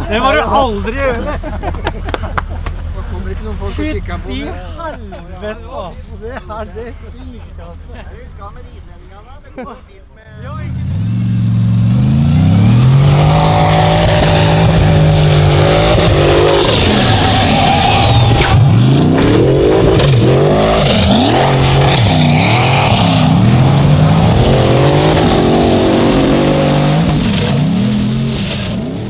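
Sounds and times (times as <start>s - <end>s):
race car engine revving: 10.3s - 29.0s.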